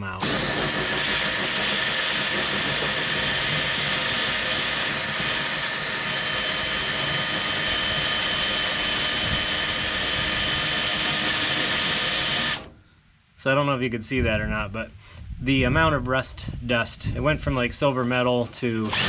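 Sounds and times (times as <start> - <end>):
drill motor whine with grinding: 0.0 - 12.7, 18.1 - 19.0.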